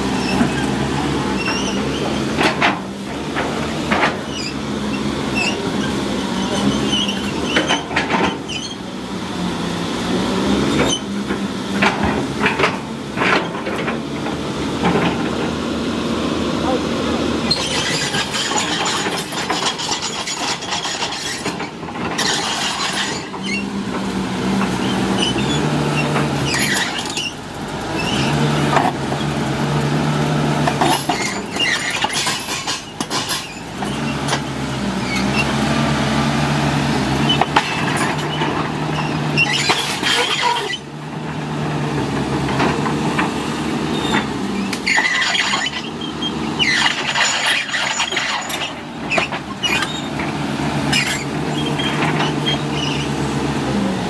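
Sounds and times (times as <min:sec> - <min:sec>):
steel tracks squealing and clanking: 0:00.0 - 0:09.0, 0:10.6 - 0:15.6, 0:16.5 - 0:54.0
excavator diesel engine: 0:00.0 - 0:54.0.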